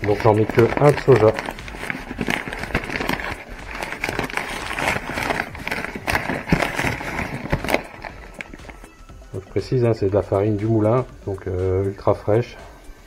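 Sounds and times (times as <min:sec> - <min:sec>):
paper bag crinkling: 0:00.0 - 0:09.0.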